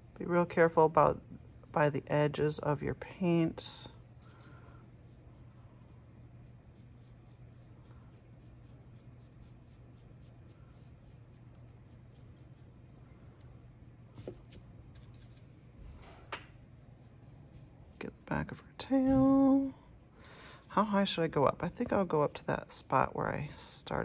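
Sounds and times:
steady low hum: 0.0s - 24.0s
paintbrush scratching: 4.2s - 12.7s, 14.2s - 15.5s, 16.8s - 19.8s.

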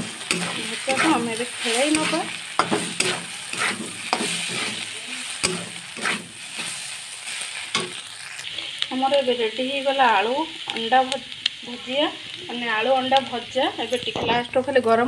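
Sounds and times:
metal spatula scraping a wok: 0.0s - 8.8s
oil sizzling: 0.0s - 15.0s.

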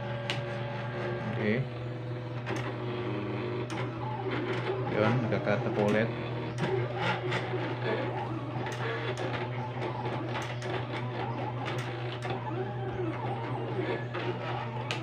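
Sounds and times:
cutting plotter motors whining: 0.0s - 15.0s
steady low hum: 0.0s - 15.0s.

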